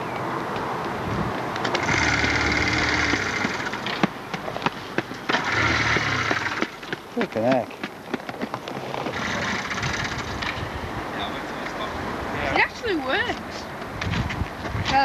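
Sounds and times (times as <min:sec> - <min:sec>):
motorcycle clatter: 0:01.6 - 0:04.4, 0:05.0 - 0:08.5
quick running footsteps: 0:03.0 - 0:09.2, 0:13.8 - 0:15.0.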